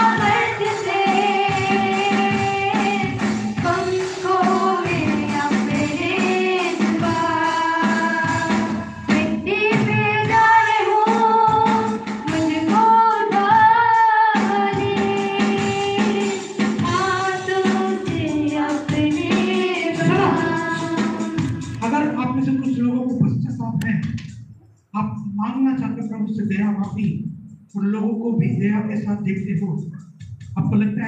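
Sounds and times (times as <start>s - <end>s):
female voices singing: 0.0s - 21.8s
steady percussion beat: 0.0s - 31.0s.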